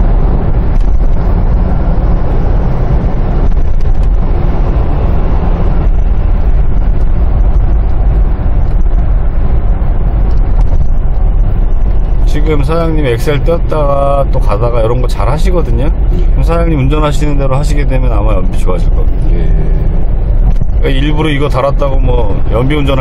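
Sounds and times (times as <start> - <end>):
car engine and tyre rumble: 0.0 - 23.0.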